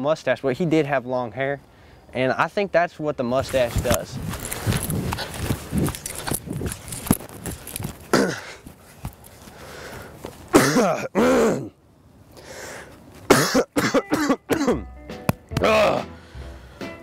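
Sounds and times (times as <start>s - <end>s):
man coughing: 8.1s - 8.6s, 10.5s - 11.8s, 13.3s - 14.9s
man panting and wheezing: 8.1s - 8.7s, 15.6s - 17.0s.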